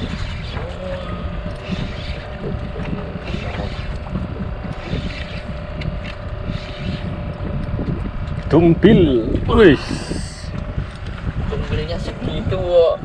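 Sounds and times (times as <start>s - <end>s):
boat engine droning: 0.0s - 13.0s
wind buffeting microphone: 0.0s - 13.0s.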